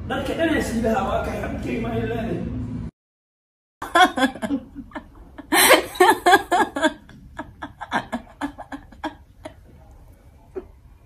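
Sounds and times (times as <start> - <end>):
woman laughing: 3.8 - 9.6.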